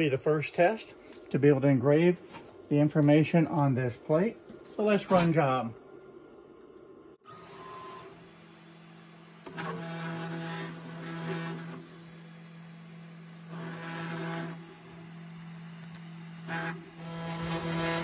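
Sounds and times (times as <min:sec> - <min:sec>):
router spindle humming: 0:07.2 - 0:18.0
stepper motors whirring: 0:07.2 - 0:18.0.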